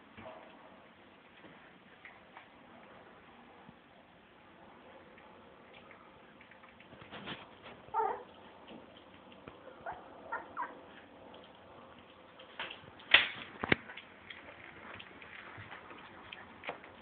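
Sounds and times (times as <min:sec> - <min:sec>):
puppy squeaking and whimpering: 0:07.9 - 0:08.3, 0:09.8 - 0:10.9.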